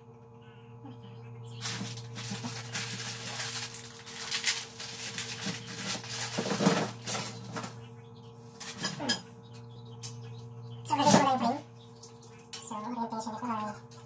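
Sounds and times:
low steady hum: 0.0s - 14.0s
plastic wrapping crinkling: 1.6s - 7.7s.

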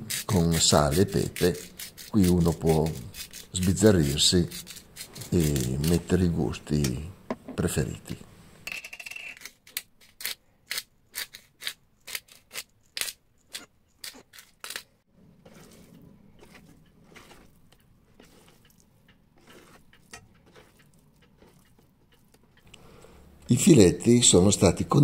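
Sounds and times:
pepper mill grinding: 0.0s - 6.3s, 9.0s - 14.9s
soft steady rustle: 15.2s - 23.5s.

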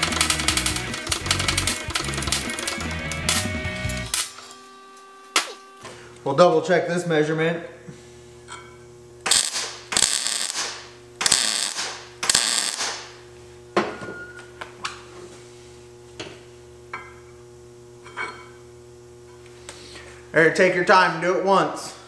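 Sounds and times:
welder arc crackle: 0.0s - 6.3s, 9.2s - 13.4s
steady hum: 0.0s - 22.0s.

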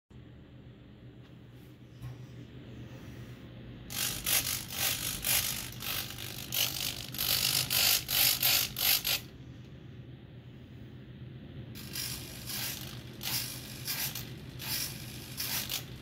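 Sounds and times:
servos whirring: 3.9s - 9.3s, 11.8s - 16.0s.

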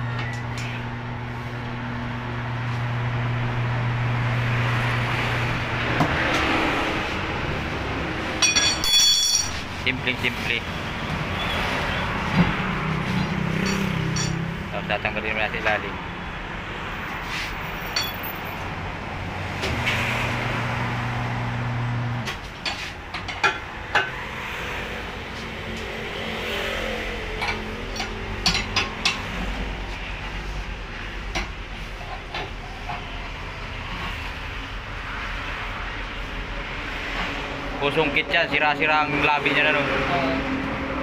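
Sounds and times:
tire iron clinking on rim: 8.4s - 9.9s, 13.6s - 14.5s, 17.8s - 18.4s
tire changer motor humming: 19.5s - 22.5s.

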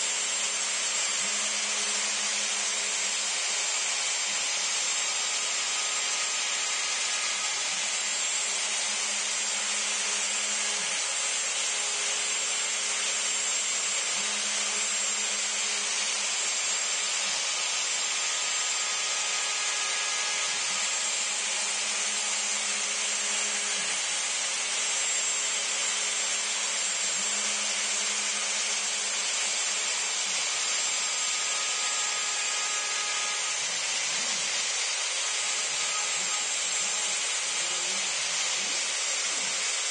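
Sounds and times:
router spindle whining: 0.0s - 39.9s.

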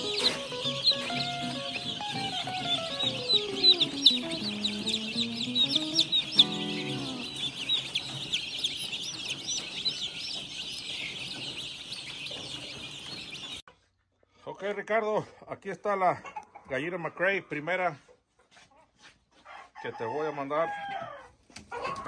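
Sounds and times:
background music: 0.0s - 9.2s
chicks peeping: 0.0s - 14.5s, 16.2s - 22.0s.

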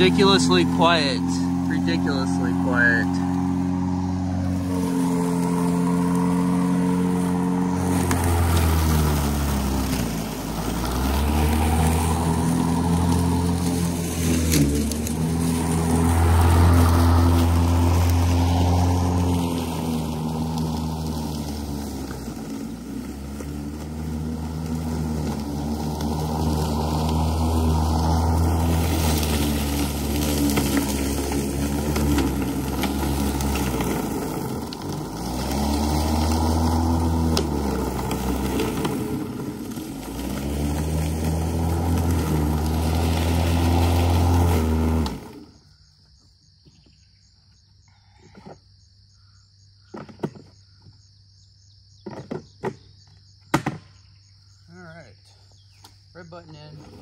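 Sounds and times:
electric lawn mower whirring: 0.0s - 46.9s.

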